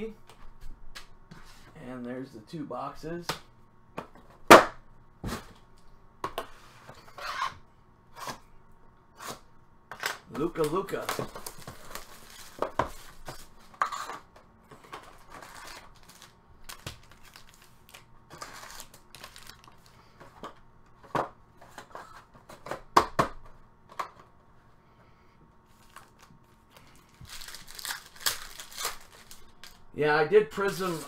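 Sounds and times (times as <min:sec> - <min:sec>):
foil pack crinkling torn open: 0:10.6 - 0:12.6, 0:15.3 - 0:19.9, 0:25.8 - 0:29.8
cellophane wrap crinkling: 0:10.8 - 0:13.5, 0:15.1 - 0:20.0, 0:25.7 - 0:29.9.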